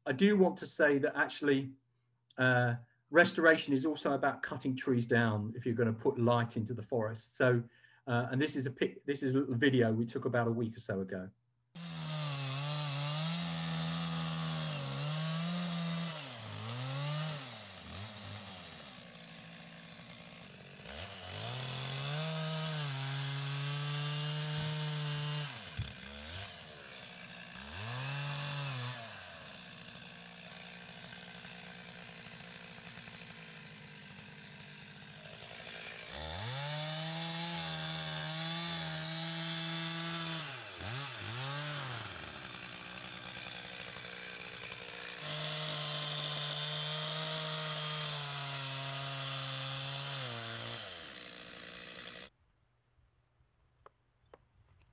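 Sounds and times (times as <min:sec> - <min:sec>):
chainsaw cutting at high revs: 0:11.7 - 0:52.3
chainsaw idling with throttle blips: 0:11.8 - 0:52.3.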